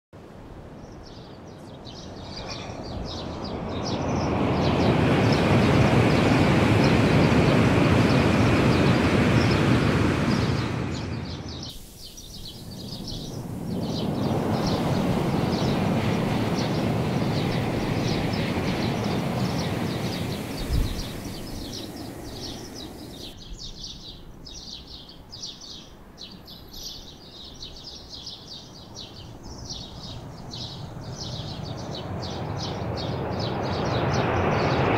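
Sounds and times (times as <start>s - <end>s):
birds chirping: 0.8s - 34.9s
high-speed trains rushing past: 2.9s - 23.4s, 30.1s - 34.9s.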